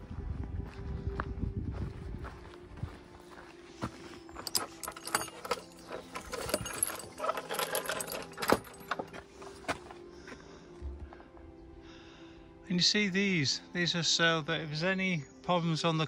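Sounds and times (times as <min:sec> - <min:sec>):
metal gate latch clinking and rattling: 0:04.3 - 0:09.7.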